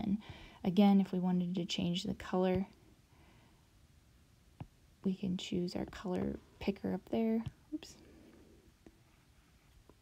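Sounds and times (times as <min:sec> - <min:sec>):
stylus tapping tablet screen: 0:05.8 - 0:07.8.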